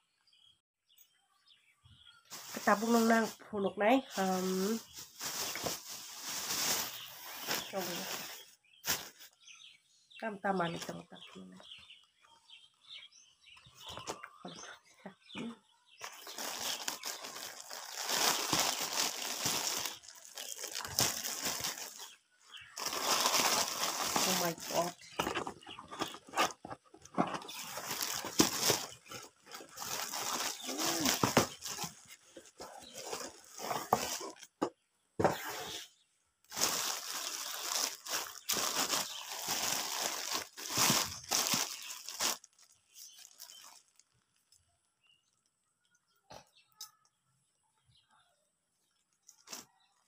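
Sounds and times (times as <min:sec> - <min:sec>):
plastic packaging crinkling: 0:02.3 - 0:03.4, 0:04.1 - 0:09.3, 0:16.0 - 0:34.6, 0:36.5 - 0:44.6, 0:49.3 - 0:49.7.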